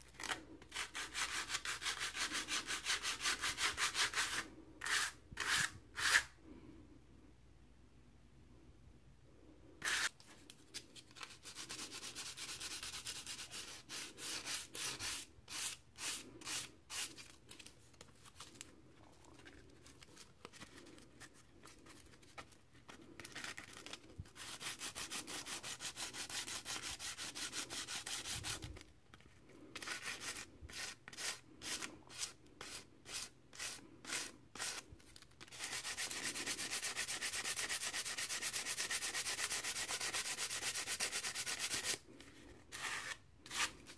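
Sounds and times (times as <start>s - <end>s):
quill scratching on sandpaper: 0.2s - 6.3s, 9.8s - 10.1s, 11.2s - 17.1s, 24.4s - 28.6s, 29.8s - 34.8s, 35.5s - 42.0s.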